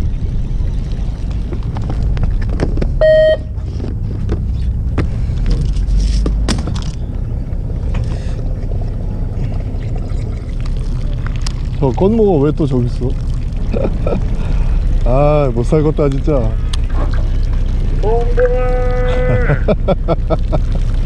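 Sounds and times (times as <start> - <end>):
boat engine rumbling: 0.0 - 21.0
short beep: 3.0 - 3.5.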